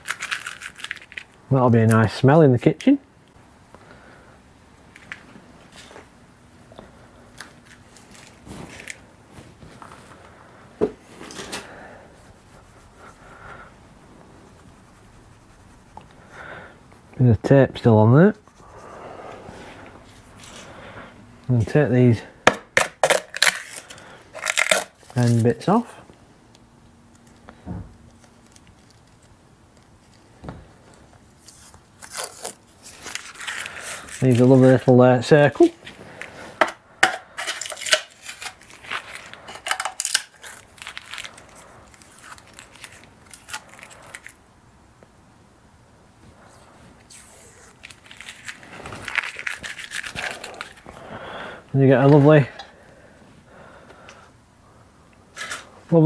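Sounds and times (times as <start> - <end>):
tape tearing crinkly: 0.0 - 3.0, 7.3 - 10.1, 22.8 - 25.8, 27.1 - 30.3, 31.3 - 36.4, 37.3 - 44.4, 47.0 - 51.0, 55.3 - 55.8.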